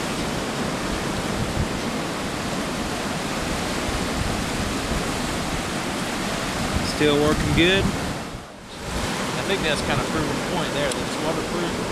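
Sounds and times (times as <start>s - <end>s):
shallow water washing over sand: 0.0s - 11.9s
wind rumble on microphone: 0.0s - 11.9s.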